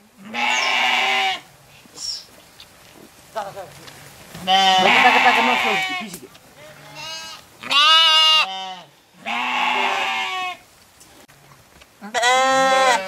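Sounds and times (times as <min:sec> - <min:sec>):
sheep and goats bleating: 0:00.2 - 0:01.5, 0:04.4 - 0:10.6, 0:12.0 - 0:13.0.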